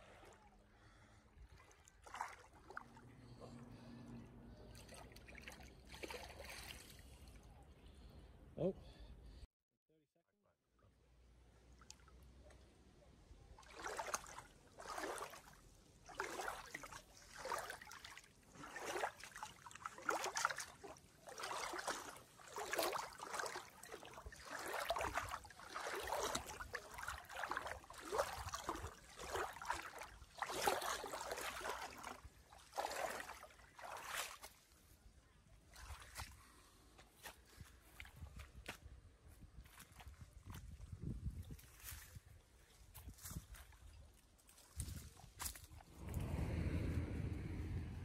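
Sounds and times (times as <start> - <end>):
swimming strokes splashing: 1.5 - 3.4, 4.7 - 7.2, 13.6 - 34.7.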